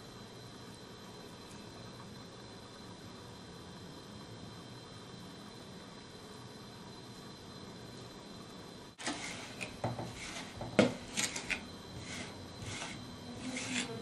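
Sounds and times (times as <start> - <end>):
faint steady hiss: 0.0 - 14.0
trowel scraping and tapping on glass: 9.0 - 14.0.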